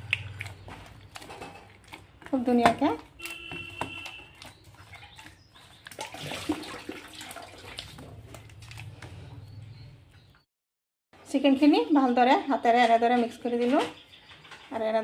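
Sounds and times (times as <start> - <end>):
meat mixture squelching by hand: 0.0 - 9.8.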